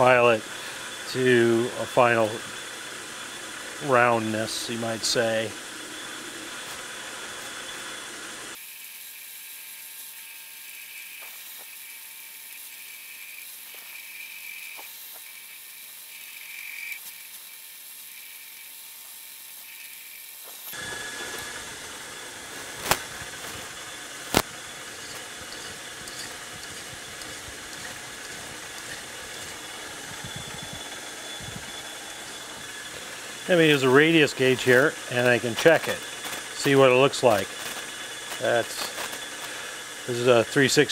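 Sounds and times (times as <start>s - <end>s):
metal lathe running: 0.0s - 40.9s
tool cutting steel rod: 3.8s - 40.8s
hand file on metal rod: 24.3s - 30.6s, 33.4s - 39.6s.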